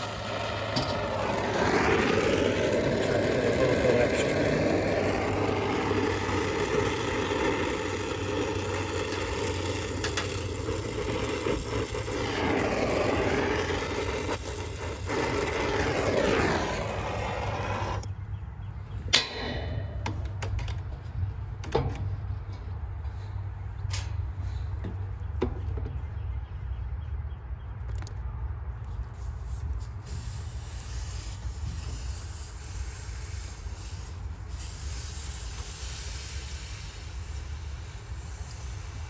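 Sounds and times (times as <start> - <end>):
torch flame hissing: 0.0 - 18.1, 30.0 - 39.0.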